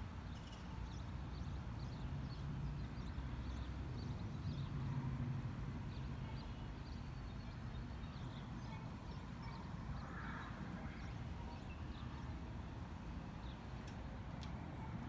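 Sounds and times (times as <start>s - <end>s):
small birds chirping: 5.8s - 14.6s.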